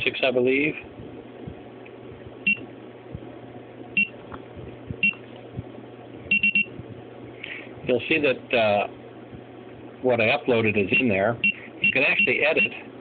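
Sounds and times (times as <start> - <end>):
alarm keypad beeping: 6.3 - 6.7.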